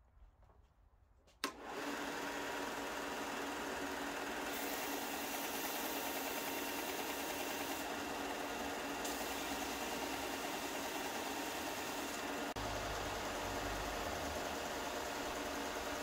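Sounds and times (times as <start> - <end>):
sander motor humming: 1.5 - 16.0
sanding belt hissing on wood: 4.5 - 7.9, 9.0 - 12.6.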